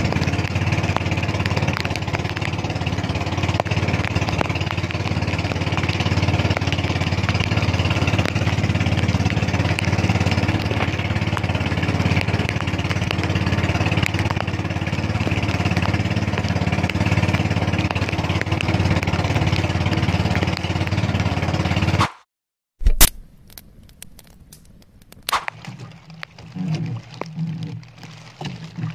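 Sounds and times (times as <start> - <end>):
choppy water: 0.0 - 22.0, 22.8 - 28.9
small boat engine running: 0.0 - 22.0, 23.7 - 28.9.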